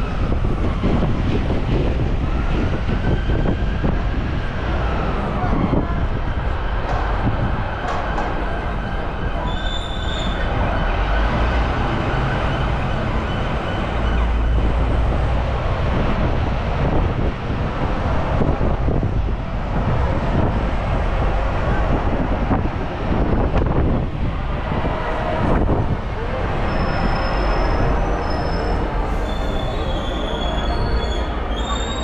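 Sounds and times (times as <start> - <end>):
vehicle rumbling and rattling: 0.0 - 32.0
high squeal: 8.4 - 14.6, 26.6 - 32.0.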